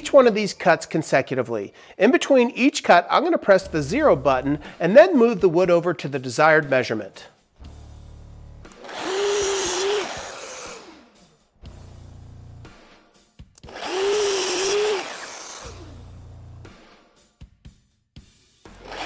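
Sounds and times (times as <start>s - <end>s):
miter saw cutting wood: 8.6s - 11.3s, 13.6s - 16.1s, 18.8s - 19.0s.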